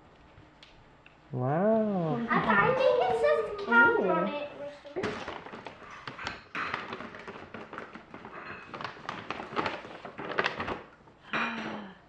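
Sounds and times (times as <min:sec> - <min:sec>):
paper bag and tissue rustling: 0:05.0 - 0:11.2.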